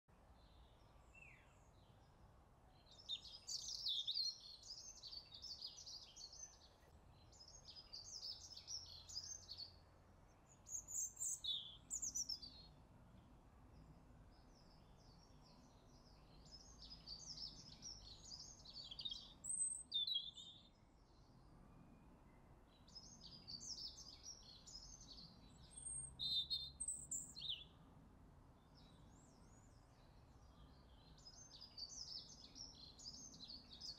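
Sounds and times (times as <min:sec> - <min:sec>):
songbird twittering: 0:02.8 - 0:09.8, 0:10.5 - 0:12.7, 0:14.6 - 0:20.8, 0:22.9 - 0:27.7.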